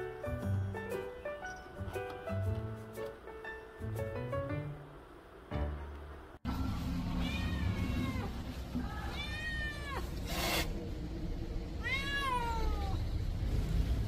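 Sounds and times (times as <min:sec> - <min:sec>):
cat meowing: 0:07.2 - 0:10.1, 0:11.8 - 0:13.0.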